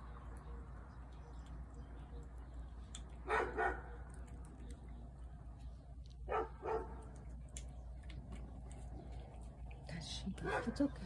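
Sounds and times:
dog barking: 3.2 - 4.2, 6.3 - 7.0, 10.4 - 10.9.

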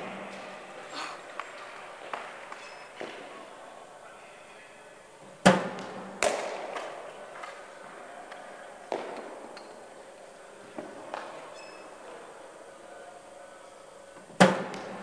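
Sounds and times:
cricket ball cracks reverberating: 5.5 - 7.1.

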